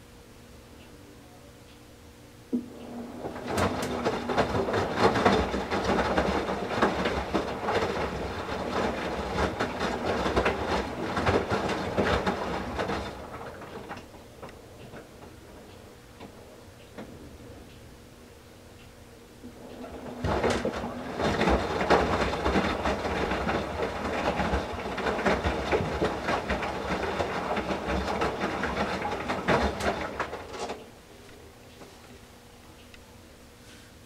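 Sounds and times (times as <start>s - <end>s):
wet towels sloshing in washer drum: 3.0s - 14.0s, 19.5s - 30.8s.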